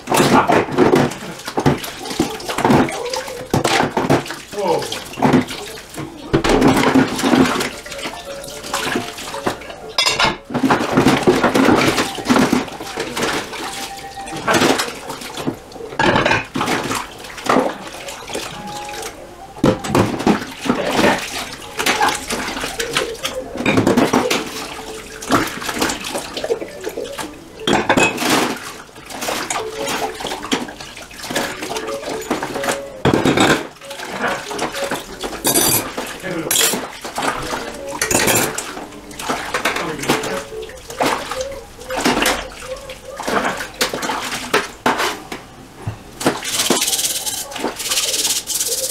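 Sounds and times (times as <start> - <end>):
sponge scrubbing dishes: 0.0 - 48.9
water sloshing and splashing: 0.0 - 48.9
dishes clinking: 6.2 - 16.9, 19.6 - 25.9, 27.6 - 28.5, 31.3 - 40.7.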